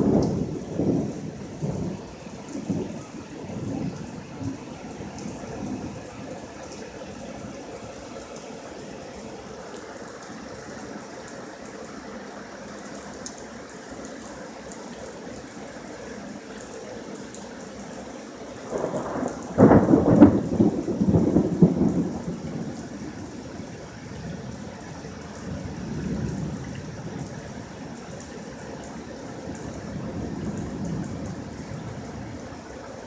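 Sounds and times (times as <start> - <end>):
thunder rumble and crack: 0.0 - 6.8, 18.6 - 28.3, 29.0 - 33.0
rain hissing: 0.0 - 33.0.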